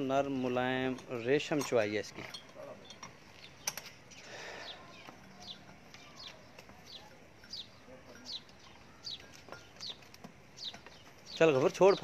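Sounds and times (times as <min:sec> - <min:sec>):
small bird chirping: 0:02.6 - 0:12.0.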